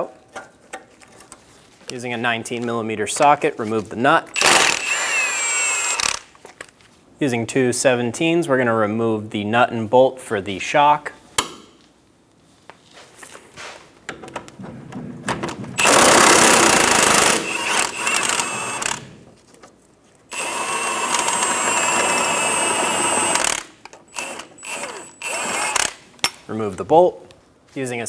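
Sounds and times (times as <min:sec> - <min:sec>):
impact wrench hammering: 0:15.8 - 0:19.1.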